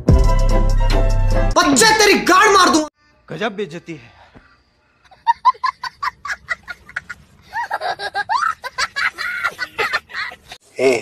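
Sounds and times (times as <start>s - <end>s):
man cackling laughter: 5.1s - 10.6s.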